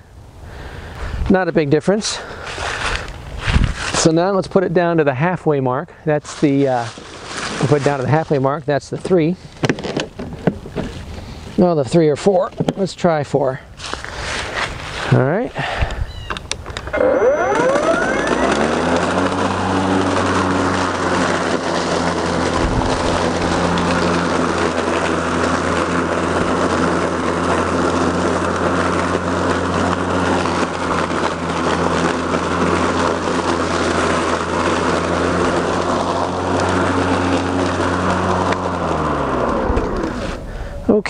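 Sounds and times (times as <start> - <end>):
mower crunching dry leaves: 1.8 - 12.3, 13.8 - 15.4, 16.8 - 41.0
electric lawn mower hum: 6.7 - 8.0, 16.4 - 41.0.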